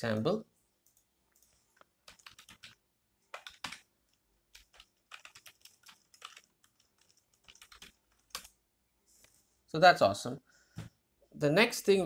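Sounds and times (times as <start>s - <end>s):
typing on computer keyboard: 0.9s - 8.6s.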